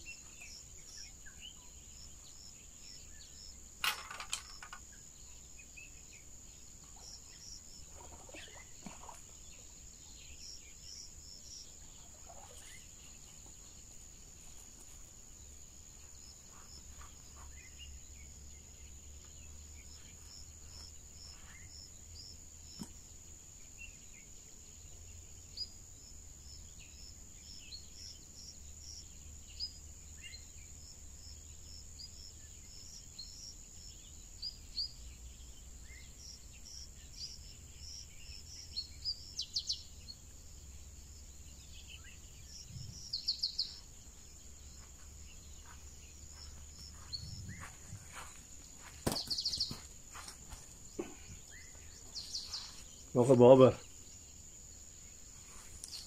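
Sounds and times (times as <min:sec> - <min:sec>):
insects droning: 0:00.0 - 0:56.0
bird chirps: 0:26.5 - 0:54.4.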